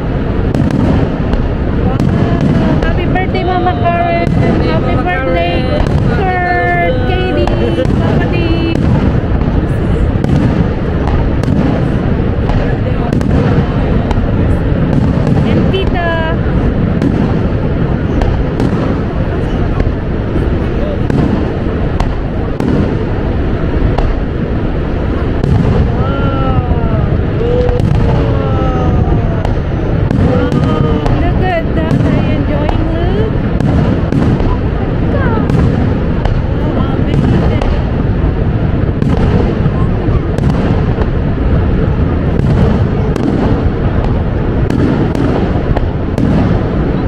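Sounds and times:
fireworks booms rumbling: 0.0s - 47.0s
fireworks sharp cracks: 0.0s - 47.0s.

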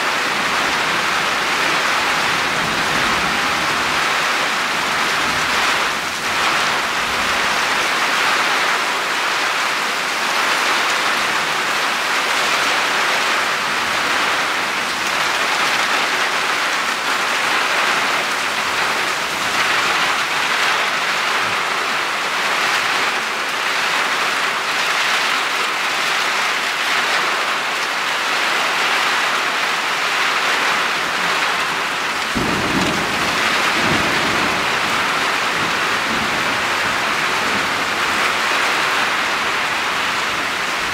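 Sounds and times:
heavy rain falling: 0.0s - 40.9s
low rumble of thunder: 31.8s - 38.6s.

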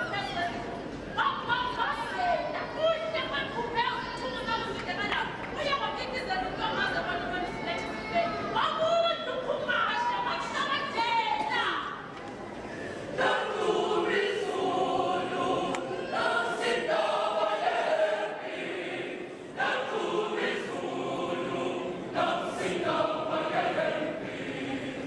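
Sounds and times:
choir singing: 13.1s - 25.0s.

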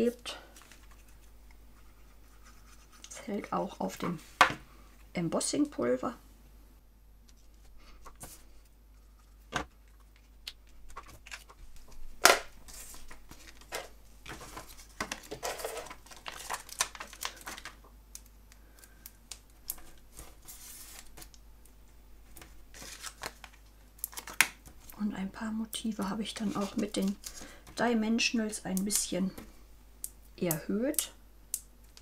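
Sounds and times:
paper rustling: 0.5s - 3.2s, 7.4s - 17.8s, 19.6s - 21.3s, 22.3s - 24.9s, 26.3s - 27.6s.

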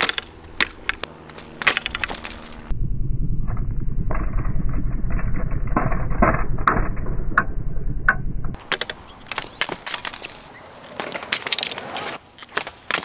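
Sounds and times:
skateboard wheels rolling on concrete: 0.0s - 2.7s, 8.5s - 13.0s.

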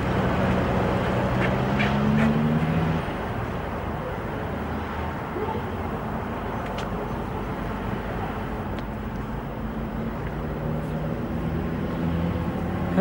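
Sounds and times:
traffic noise: 0.0s - 13.0s
vehicle engine hum: 0.0s - 13.0s.

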